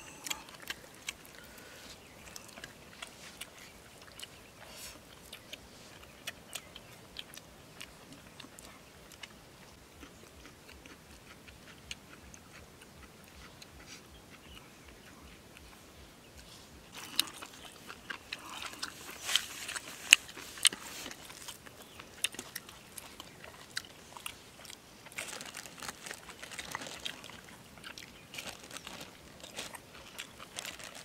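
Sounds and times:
chewing and crunching: 0.0s - 31.0s.

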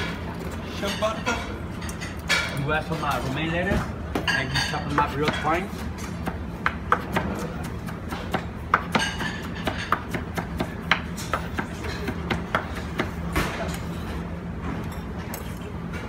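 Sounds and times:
knife chopping lettuce on board: 4.9s - 13.8s.

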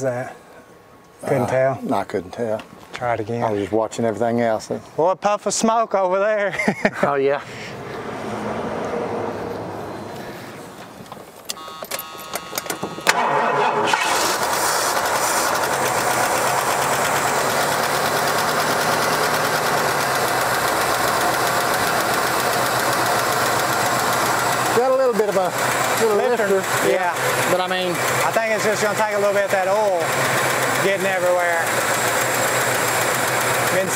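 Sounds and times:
car engine cranking and starting: 10.0s - 33.9s
engine lifter ticking: 15.0s - 33.9s.

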